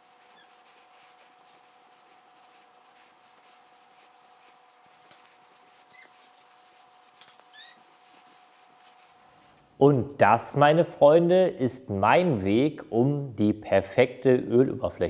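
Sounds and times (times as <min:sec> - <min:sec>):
brief high squeaks: 0:07.4 - 0:07.9.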